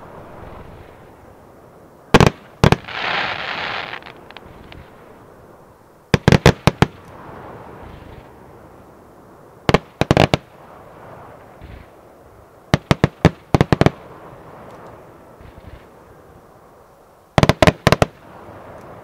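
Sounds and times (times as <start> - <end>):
aerial fireworks bangs: 2.1 - 3.4.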